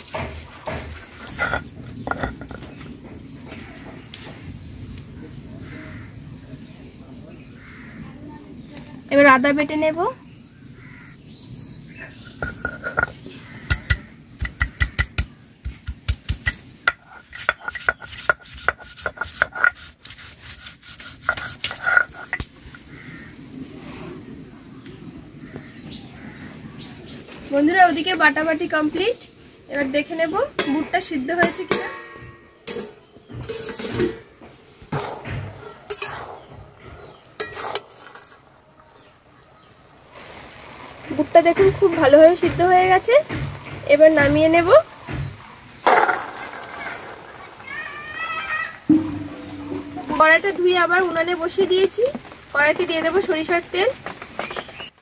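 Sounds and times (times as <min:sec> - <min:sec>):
stone roller knocking: 0:00.0 - 0:02.9, 0:12.2 - 0:22.8, 0:41.5 - 0:47.4, 0:48.9 - 0:50.6
stone rubbing on stone: 0:00.8 - 0:02.7, 0:12.3 - 0:13.2, 0:16.9 - 0:22.5
metal spatula clanking on pan: 0:30.6 - 0:34.3, 0:35.2 - 0:36.4, 0:37.4 - 0:38.4.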